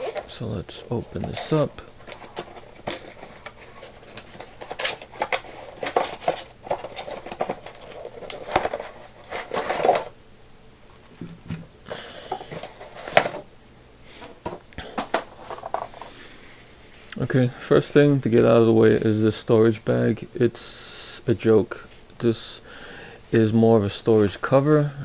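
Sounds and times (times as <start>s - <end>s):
cardboard box rustling and scraping: 1.2s - 10.1s, 12.3s - 13.5s.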